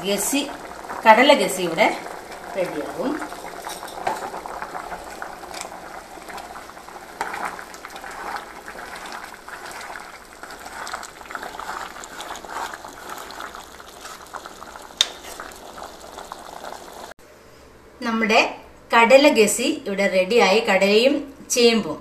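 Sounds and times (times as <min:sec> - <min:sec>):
thick curry bubbling: 0:00.0 - 0:17.2
metal ladle stirring: 0:02.2 - 0:16.2.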